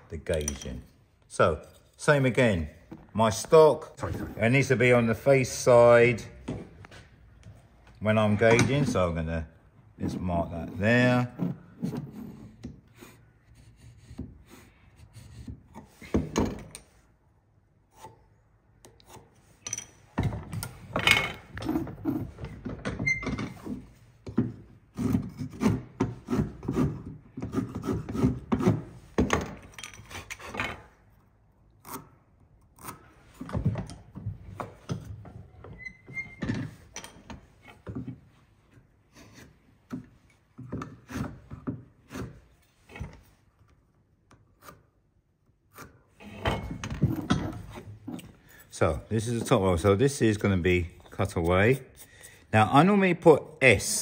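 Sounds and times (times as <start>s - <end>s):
pin scraping along wood: 45.7s - 52.6s.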